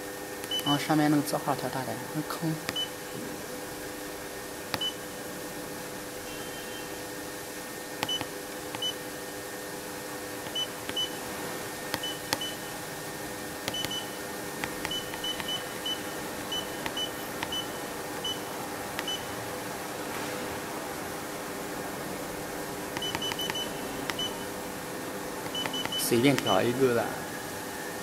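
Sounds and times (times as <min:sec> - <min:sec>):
steady low hum: 0:00.0 - 0:28.0
sharp clicks: 0:08.0 - 0:08.9, 0:13.6 - 0:15.7, 0:16.8 - 0:17.7, 0:22.9 - 0:24.4, 0:25.4 - 0:26.6
short high beeps: 0:13.7 - 0:14.2, 0:23.0 - 0:24.5, 0:25.5 - 0:26.6.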